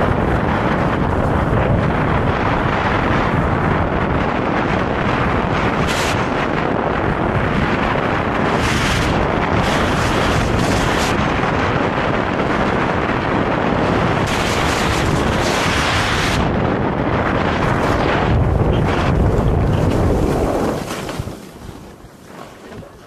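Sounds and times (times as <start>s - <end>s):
wind buffeting microphone: 0.0s - 23.0s
skis scraping over packed snow: 17.2s - 23.0s.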